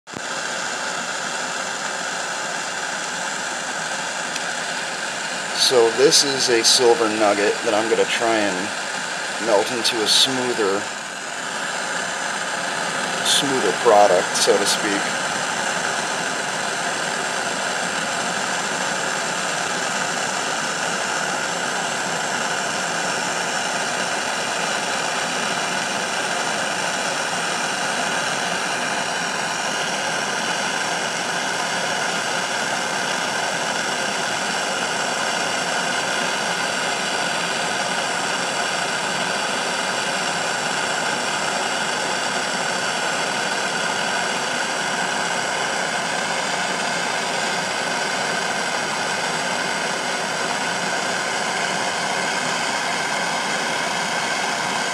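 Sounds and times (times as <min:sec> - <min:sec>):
gas torch flame hissing: 0:00.2 - 0:54.9.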